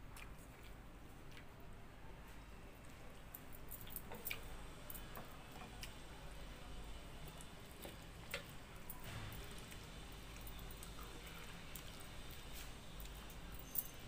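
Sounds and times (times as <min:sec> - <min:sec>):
chewing and mouth smacks: 0:00.0 - 0:01.6, 0:03.8 - 0:04.5, 0:07.3 - 0:13.2
low steady hum: 0:00.0 - 0:14.0.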